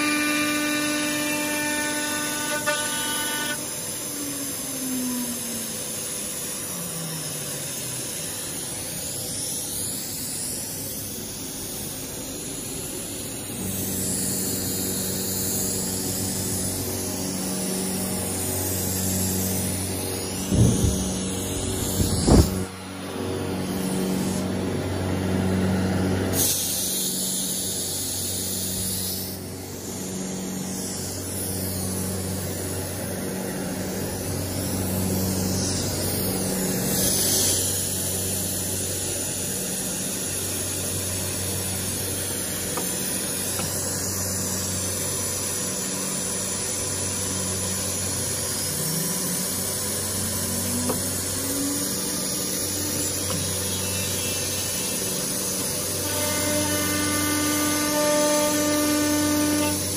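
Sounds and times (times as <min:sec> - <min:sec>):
cnc router spindle whine: 0:00.0 - 0:59.9
pulsing low hum: 0:03.5 - 0:26.4, 0:27.9 - 0:58.1.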